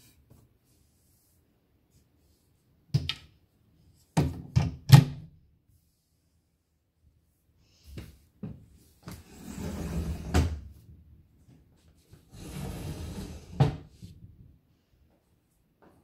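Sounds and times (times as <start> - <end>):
wooden furniture scraping: 9.1 - 10.6, 12.3 - 13.9.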